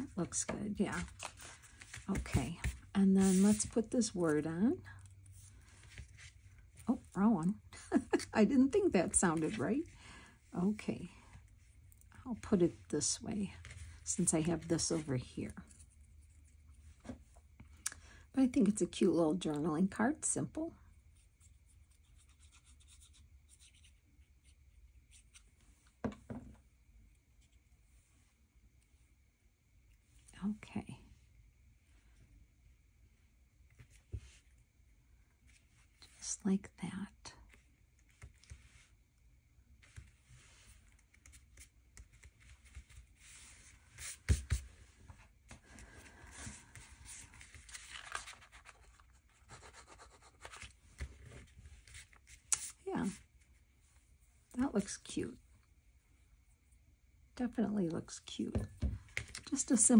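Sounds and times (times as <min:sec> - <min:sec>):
paper rubbing and scratching: 0:00.9 - 0:03.8, 0:21.9 - 0:24.0, 0:46.4 - 0:52.8
hands rubbing paper: 0:00.9 - 0:04.3.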